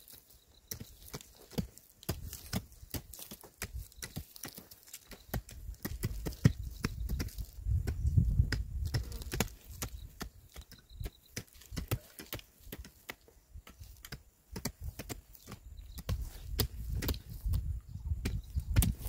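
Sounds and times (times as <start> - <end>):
hand hoes striking soil: 0.0 - 19.0.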